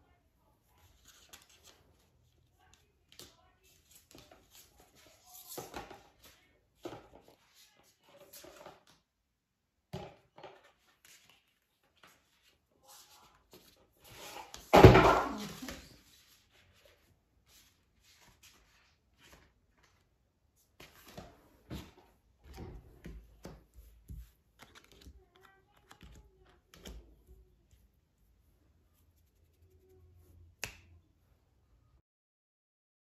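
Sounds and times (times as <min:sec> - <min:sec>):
cards clicking and tapping on table: 0:22.6 - 0:27.1, 0:30.6 - 0:31.0.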